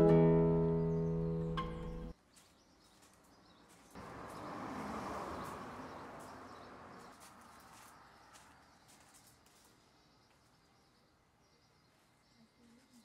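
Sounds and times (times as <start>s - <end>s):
acoustic guitar chord strummed: 0.0s - 2.1s
faint bird chirps: 7.6s - 13.0s.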